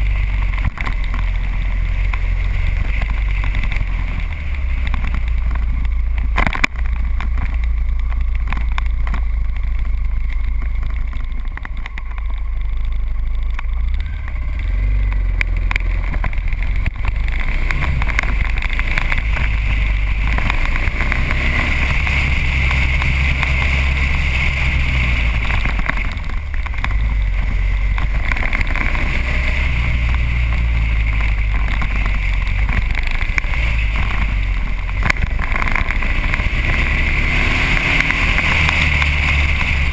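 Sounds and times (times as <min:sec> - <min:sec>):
motorcycle engine running: 0:00.0 - 0:39.9
wind rumble on microphone: 0:00.0 - 0:39.9.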